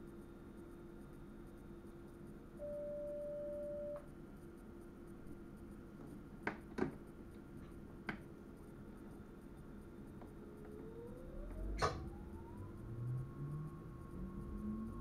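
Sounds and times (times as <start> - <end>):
steady beep: 2.6 - 4.0
low hum: 10.2 - 15.0.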